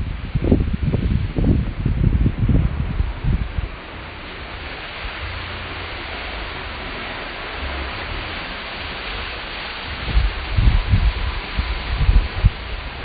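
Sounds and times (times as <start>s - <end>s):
road noise inside moving car: 0.0s - 13.0s.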